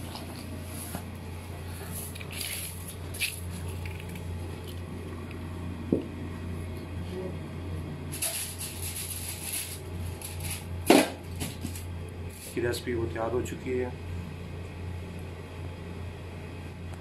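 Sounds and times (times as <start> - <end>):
steady low hum: 0.0 - 17.0
rice scraping and rustling: 8.2 - 10.7.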